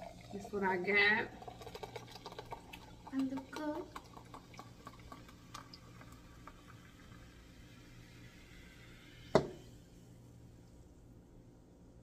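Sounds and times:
soda pouring and fizzing: 0:00.0 - 0:11.0
can knocking on table: 0:09.4 - 0:09.6.

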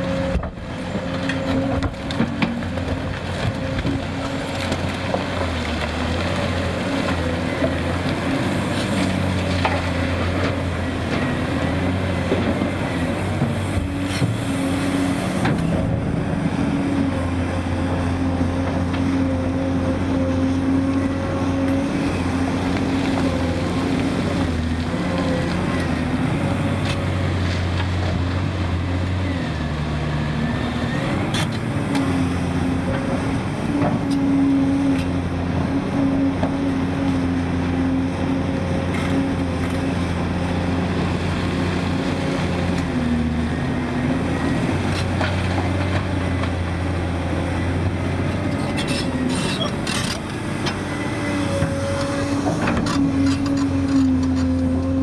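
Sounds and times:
excavator diesel engine under load: 0:00.0 - 0:55.0.

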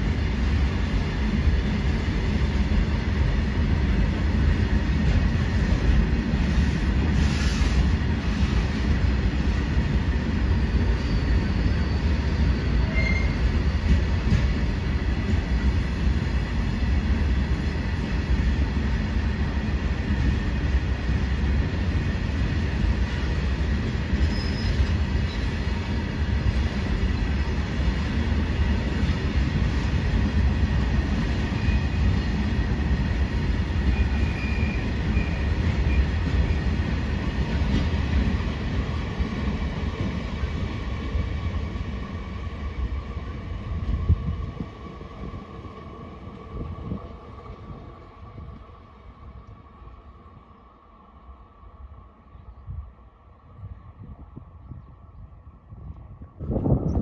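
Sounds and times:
freight train wheels rumbling on rail: 0:00.0 - 0:57.0
high wheel squeal: 0:10.4 - 0:14.0, 0:24.2 - 0:25.5, 0:33.9 - 0:36.1.

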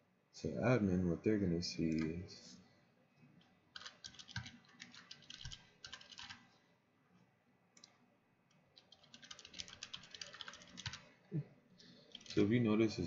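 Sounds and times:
faint keyboard typing: 0:01.8 - 0:02.3, 0:03.2 - 0:11.1, 0:11.8 - 0:12.6.

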